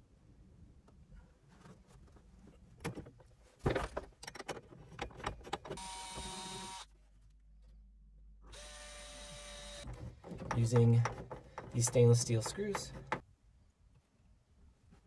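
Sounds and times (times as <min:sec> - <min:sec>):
handling clicks and knocks: 0:02.0 - 0:05.8, 0:09.8 - 0:13.3
cordless drill whirring: 0:05.8 - 0:06.9, 0:08.5 - 0:09.9.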